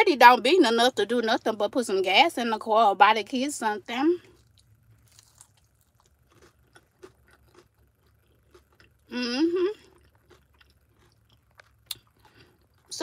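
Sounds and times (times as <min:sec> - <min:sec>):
person chewing crunchy food: 0:04.2 - 0:13.0.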